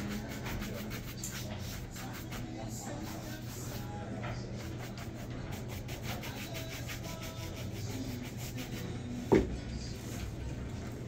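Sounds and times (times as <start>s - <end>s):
shoe shine brush rubbing: 0.0s - 3.9s, 4.6s - 9.0s.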